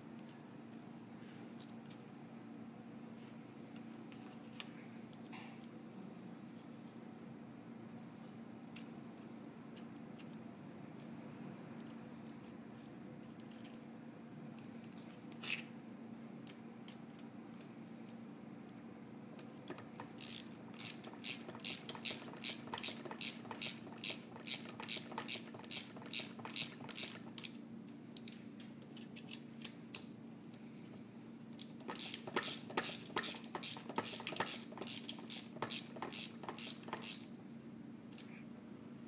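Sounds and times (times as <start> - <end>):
ratchet wrench clicking: 20.1 - 27.6, 31.6 - 37.3.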